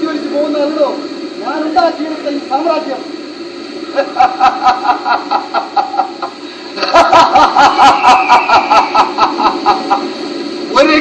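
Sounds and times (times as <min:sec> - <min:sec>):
man laughing: 0:03.9 - 0:10.2.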